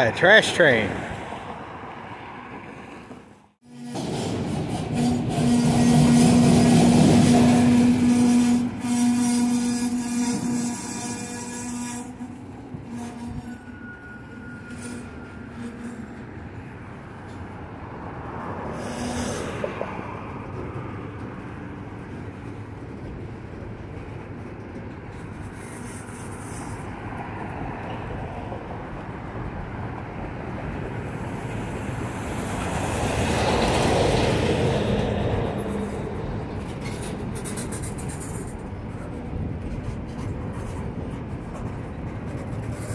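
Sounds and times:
train wheels rumbling and clacking: 2.4s - 42.9s
thin wheel squeal: 5.0s - 16.3s.

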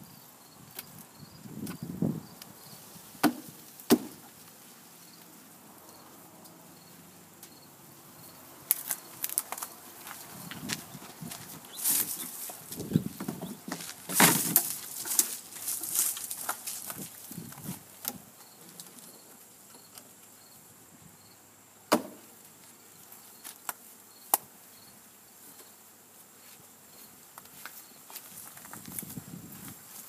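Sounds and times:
handling knocks and rustles: 8.7s - 19.1s.

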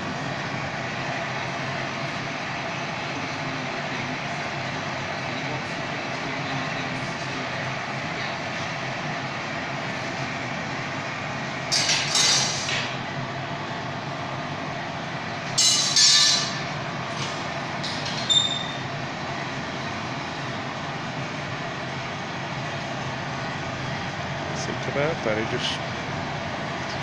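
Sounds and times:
furnace roaring: 0.0s - 27.0s
glass clink with ring: 15.6s - 16.6s.

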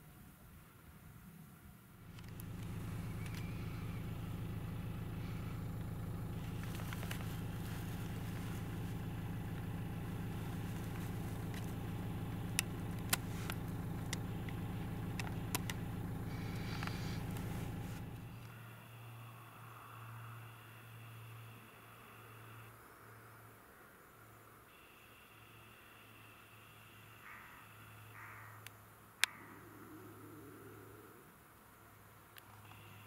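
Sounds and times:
vehicle engine idling: 1.9s - 22.3s
sharp clicks: 2.1s - 4.1s, 5.8s - 18.5s.

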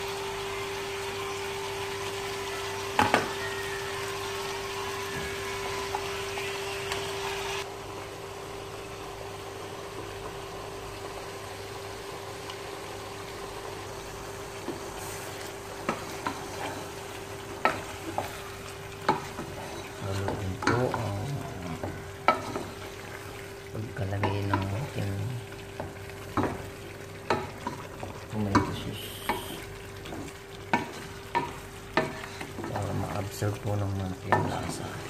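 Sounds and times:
stew sizzling: 0.0s - 35.0s
spatula scraping pot: 15.0s - 23.3s, 28.6s - 33.2s.

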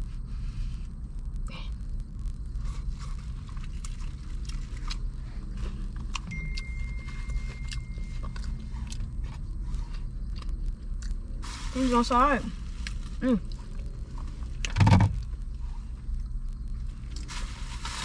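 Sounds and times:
chewing with crunches: 0.0s - 11.4s, 12.6s - 18.0s
steady low rumble: 0.0s - 18.0s
thin high tone: 6.2s - 9.1s.

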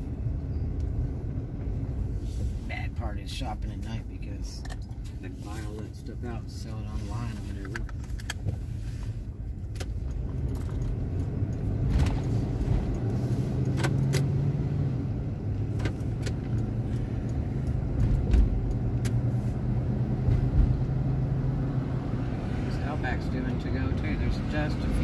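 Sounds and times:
car engine and road drone: 0.0s - 25.0s
light clicks and rattles: 7.4s - 8.6s.

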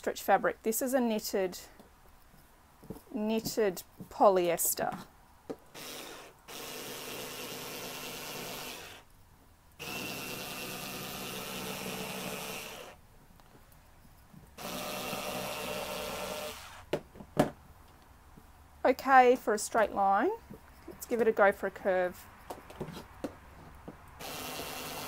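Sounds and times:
cordless screwdriver cutter whirring: 5.8s - 9.0s, 9.8s - 13.0s, 24.2s - 25.0s.

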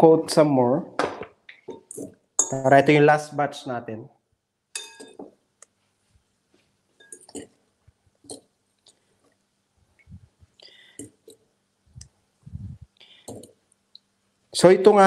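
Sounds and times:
utensil clinking on glass bowl: 1.7s - 2.7s, 4.8s - 5.3s, 7.0s - 7.6s.

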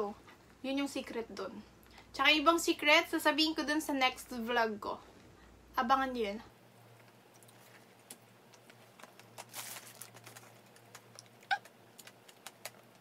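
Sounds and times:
mouth smacks and clicks: 10.6s - 13.0s.

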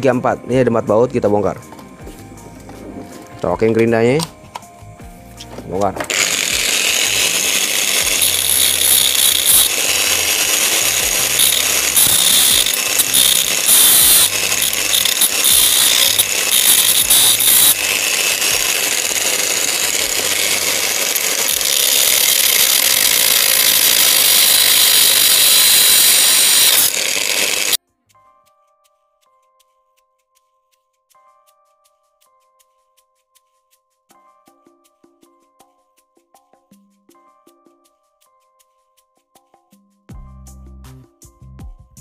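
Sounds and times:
angle grinder cutting steel: 5.8s - 27.8s.

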